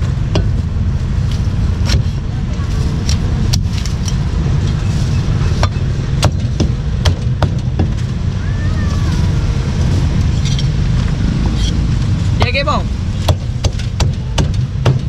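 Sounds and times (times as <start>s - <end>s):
steady low rumble: 0.0s - 15.0s
cleaver chopping on wooden block: 13.2s - 15.0s.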